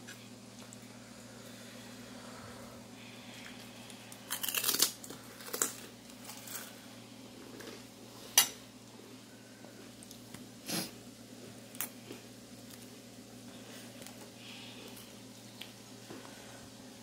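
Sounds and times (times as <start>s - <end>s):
faint steady hum: 0.0s - 17.0s
crisp shells crackling: 4.1s - 6.8s.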